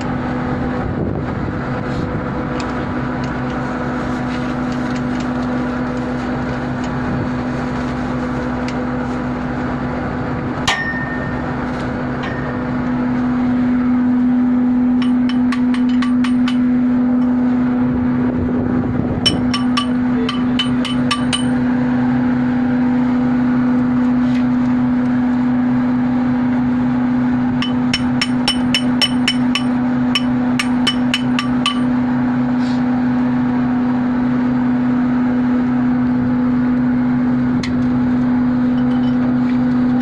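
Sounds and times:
machinery hum: 0:00.0 - 0:40.0
metal tool ringing clink: 0:10.7 - 0:11.4.

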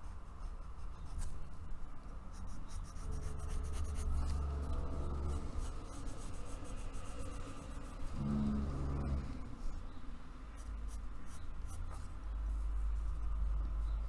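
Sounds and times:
pencil scratching on paper: 0:00.0 - 0:09.7
low background rumble: 0:00.0 - 0:14.0.

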